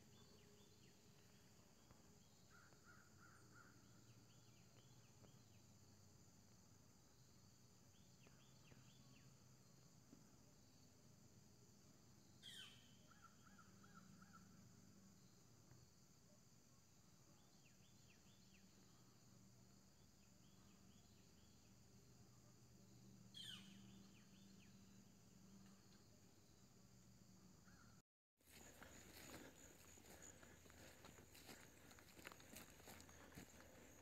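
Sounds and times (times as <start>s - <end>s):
faint birds calling: 12.4s - 14.6s, 23.3s - 24.9s, 27.6s - 34.0s.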